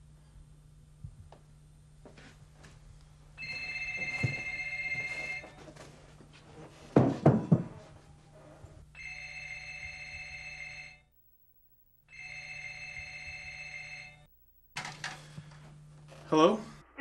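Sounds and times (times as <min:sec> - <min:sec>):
telephone ringing: 0:03.4 - 0:05.9, 0:08.9 - 0:15.3
heavy thumps: 0:06.9 - 0:08.0.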